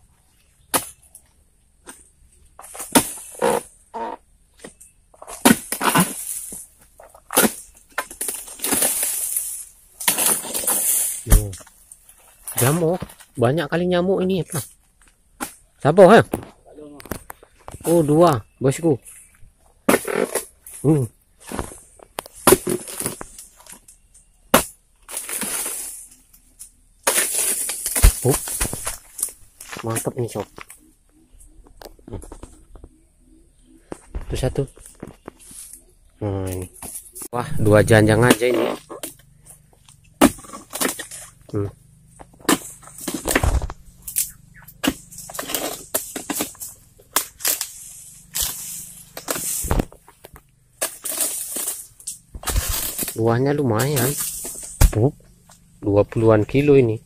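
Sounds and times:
blade cutting palm stalks: 0:02.6 - 0:13.2, 0:19.9 - 0:20.5, 0:21.4 - 0:26.2, 0:27.0 - 0:30.7, 0:36.5 - 0:39.2, 0:40.2 - 0:55.6
rustling crackle of fronds: 0:04.8 - 0:19.5, 0:25.0 - 0:57.0
sharp crack: 0:27.0 - 0:30.8, 0:42.4 - 0:55.6.

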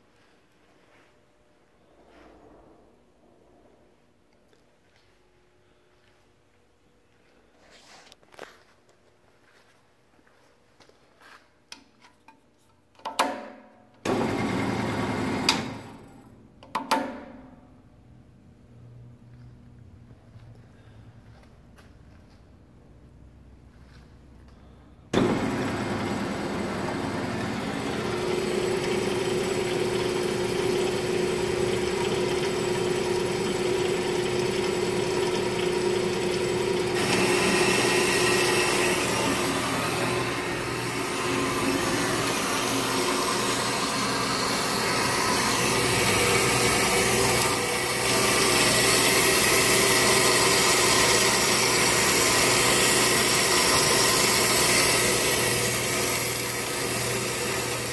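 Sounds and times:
band saw running: 0:14.1 - 0:16.2, 0:25.2 - 0:57.9
saw blade cutting steel tube: 0:37.0 - 0:57.9.

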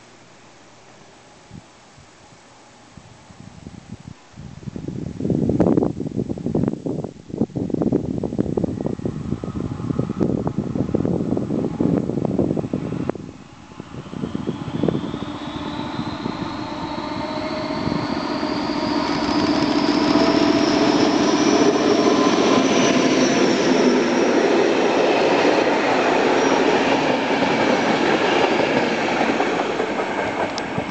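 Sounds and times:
diesel locomotive engine: 0:08.3 - 0:30.9
passenger coaches rolling past: 0:08.6 - 0:30.9
high rising whistle: 0:08.7 - 0:30.9.

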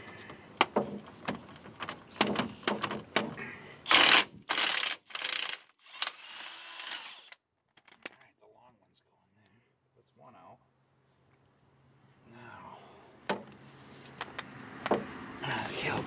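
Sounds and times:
metal clicks and knocks: 0:00.6 - 0:03.4.

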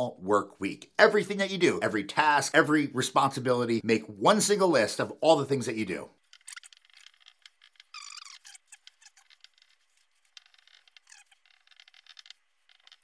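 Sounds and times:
marker scratching on whiteboard: 0:06.2 - 0:13.0
marker squeaks: 0:06.2 - 0:13.0.

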